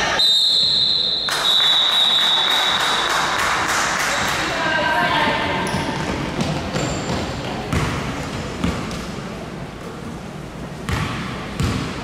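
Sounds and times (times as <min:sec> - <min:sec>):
basketball bouncing on gym floor: 0:05.6 - 0:09.1, 0:10.9 - 0:12.0.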